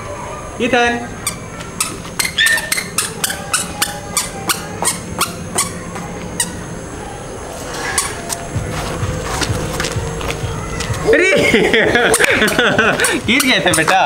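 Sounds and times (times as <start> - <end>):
toddler footsteps on concrete: 1.2 - 6.6, 7.6 - 11.2, 11.9 - 14.0.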